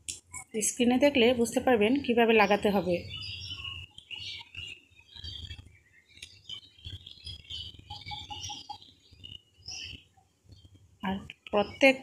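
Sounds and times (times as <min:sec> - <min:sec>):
high chirps: 0:02.6 - 0:10.8.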